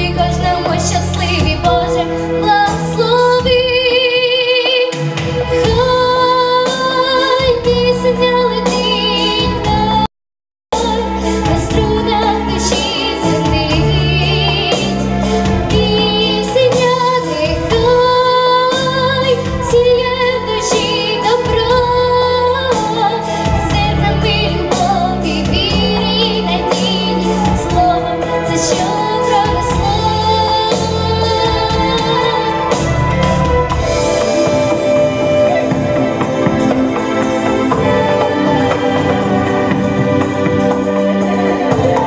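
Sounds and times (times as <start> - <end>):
instrumental backing with beat: 10.8 - 42.0
girl singing into a microphone: 15.7 - 32.8.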